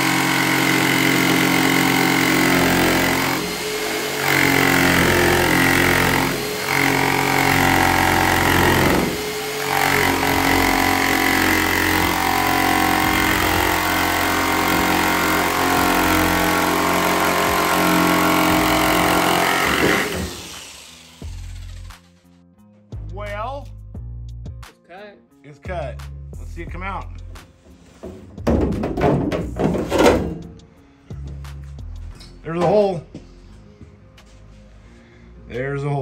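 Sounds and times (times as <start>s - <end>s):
jigsaw cutting sheet metal: 0.0s - 22.2s.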